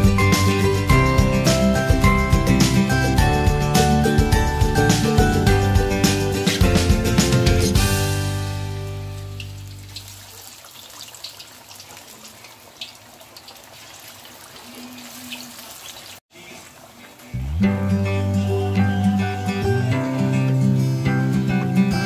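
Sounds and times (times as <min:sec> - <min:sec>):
fish sizzling in hot oil: 0:08.9 - 0:17.3
oil crackling and popping: 0:09.0 - 0:17.3.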